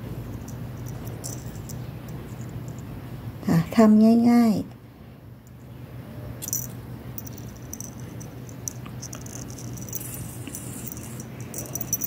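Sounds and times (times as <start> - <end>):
steady low hum: 0.0 - 12.0
thread scratching and rustling: 7.2 - 12.0.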